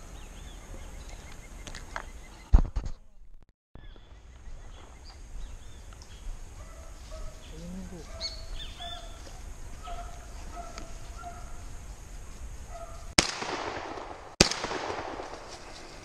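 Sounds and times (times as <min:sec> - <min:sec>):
shotgun shots echoing: 0:13.2 - 0:16.0.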